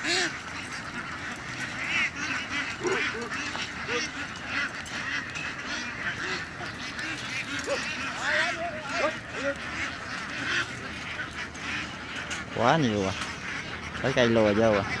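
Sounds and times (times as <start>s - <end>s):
ducks quacking: 0.0s - 15.0s.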